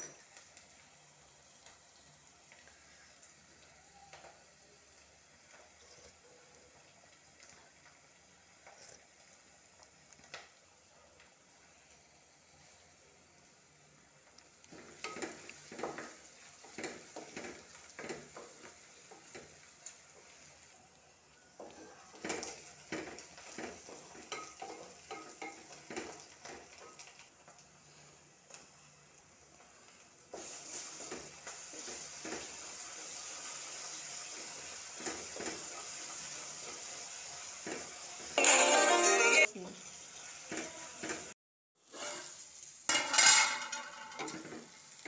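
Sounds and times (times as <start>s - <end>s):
frying sizzle: 0.0s - 45.0s
wooden spatula scraping a pan: 30.3s - 36.9s, 40.3s - 45.0s.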